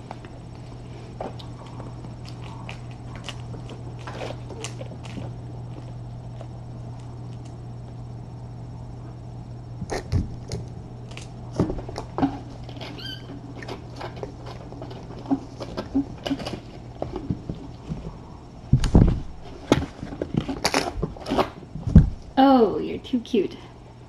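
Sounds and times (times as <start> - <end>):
low hum: 0.0 - 24.0
high squeak: 12.8 - 13.3.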